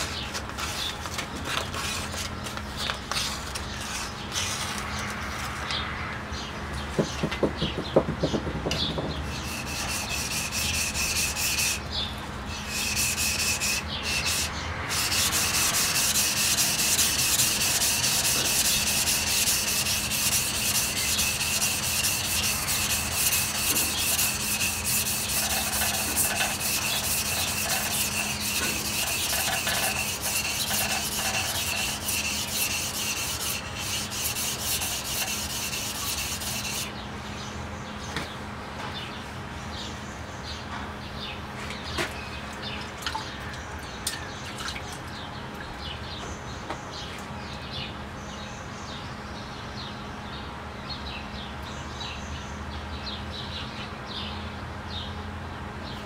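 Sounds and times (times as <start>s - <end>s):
knife grinding on sharpening stone: 15.1s - 36.9s.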